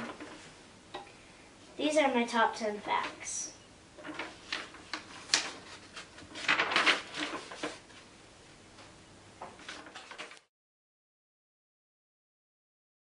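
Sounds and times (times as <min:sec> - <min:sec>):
paper rustling and crinkling: 0:04.0 - 0:08.1, 0:09.5 - 0:10.5.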